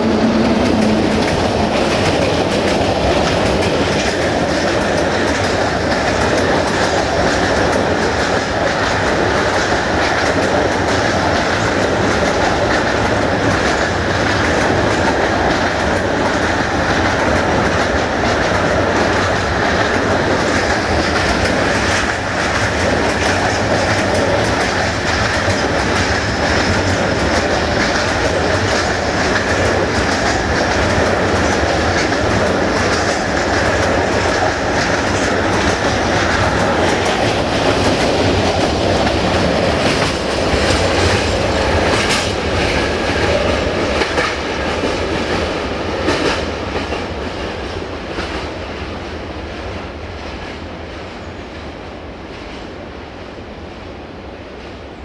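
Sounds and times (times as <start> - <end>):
train wheels clattering over rail joints: 0.0 - 49.2.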